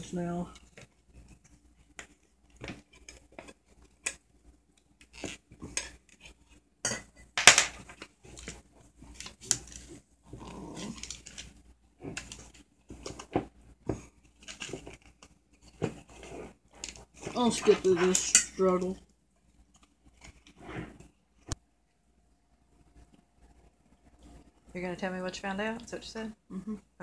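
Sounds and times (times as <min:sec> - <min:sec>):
clicks and scratches: 0:00.5 - 0:06.6, 0:07.2 - 0:21.6.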